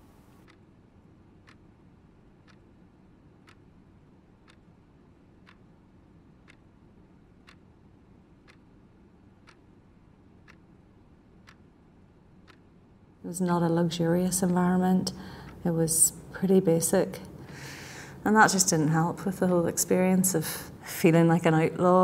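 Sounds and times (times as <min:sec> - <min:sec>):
clock ticking: 0:00.0 - 0:00.7, 0:01.4 - 0:01.7, 0:02.3 - 0:03.7, 0:04.4 - 0:05.7, 0:06.4 - 0:07.7, 0:08.3 - 0:08.8, 0:09.4 - 0:11.7, 0:12.4 - 0:12.7, 0:13.4 - 0:20.8
low room hum: 0:00.0 - 0:22.0.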